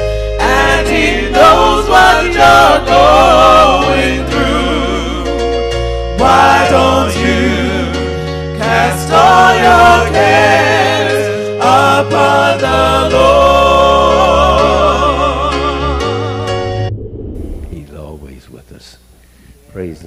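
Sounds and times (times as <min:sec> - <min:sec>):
person singing with vibrato: 0:06.2 - 0:16.5
bass line: 0:15.6 - 0:18.0.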